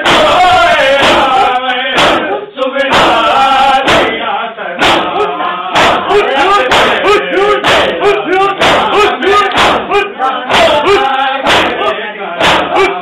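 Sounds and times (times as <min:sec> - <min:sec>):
men chanting a lament: 0:00.0 - 0:13.0
chest-beating strokes: 0:04.8 - 0:13.0.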